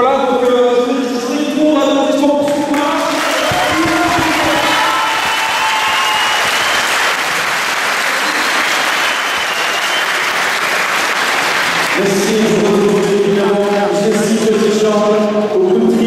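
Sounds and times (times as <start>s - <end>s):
crowd applauding: 2.4s - 14.8s
people shouting: 3.2s - 6.6s.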